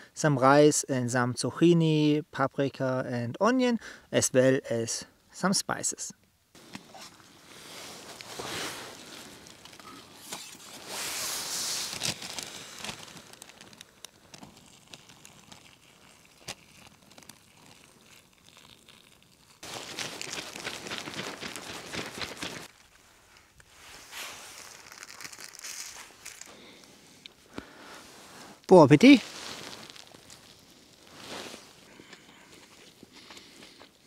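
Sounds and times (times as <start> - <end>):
plastic bag crinkling: 7.3 - 27.4, 28.3 - 33.6.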